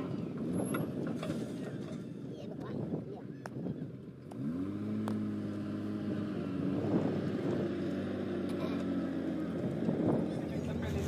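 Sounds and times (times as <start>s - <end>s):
diesel engine revving: 4.2s - 11.0s.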